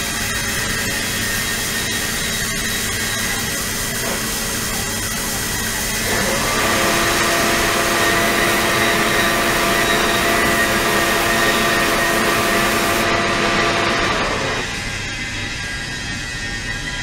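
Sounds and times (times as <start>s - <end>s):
ultrasonic tank humming: 5.9s - 15.0s
water rushing through nozzle: 6.0s - 14.7s.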